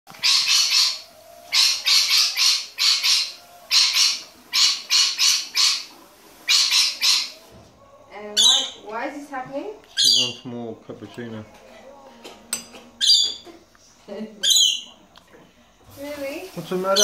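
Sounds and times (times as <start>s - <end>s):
lorikeet screeching: 0.2s - 5.9s, 6.5s - 7.4s, 8.3s - 8.8s, 10.0s - 10.4s, 13.0s - 13.4s, 14.4s - 14.9s.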